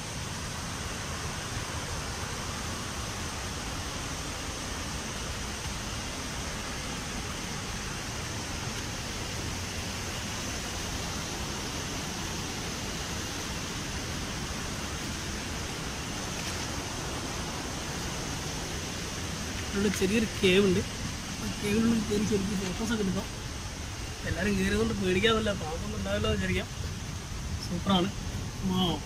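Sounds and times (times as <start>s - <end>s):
river rushing over rapids: 0.0s - 29.0s.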